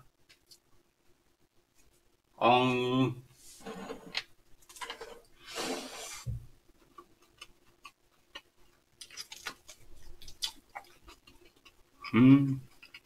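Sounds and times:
quiet chewing: 0:06.7 - 0:13.0.

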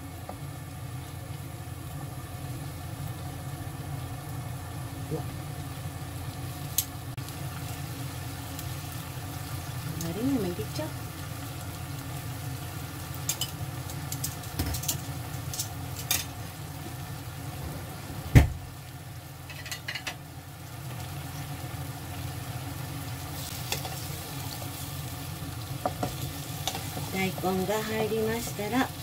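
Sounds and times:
sauce sizzling and bubbling in pan: 0:00.0 - 0:29.0
loud knock: 0:18.3 - 0:18.6.

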